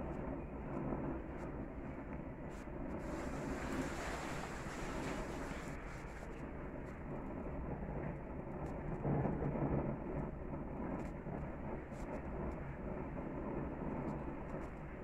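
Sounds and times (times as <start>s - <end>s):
faint crackles: 0.0s - 15.0s
gas grill flame rushing: 2.4s - 6.4s.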